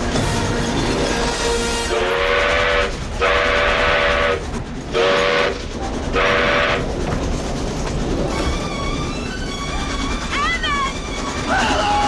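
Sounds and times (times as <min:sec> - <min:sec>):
train rumbling on rails: 0:00.0 - 0:12.0
steam locomotive whistle blasts: 0:01.4 - 0:04.4, 0:05.0 - 0:05.6.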